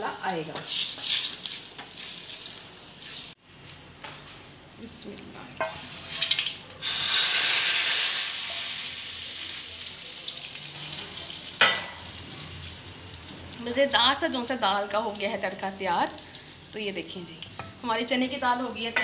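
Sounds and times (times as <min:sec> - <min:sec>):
oil sizzling in a pan: 0:00.1 - 0:04.8, 0:05.6 - 0:19.0
loud hiss of hot oil: 0:06.8 - 0:09.7.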